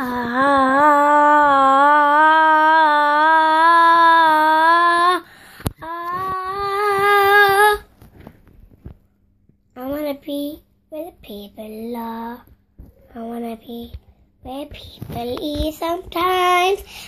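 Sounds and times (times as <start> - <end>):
girl singing held notes: 0.0 - 7.9.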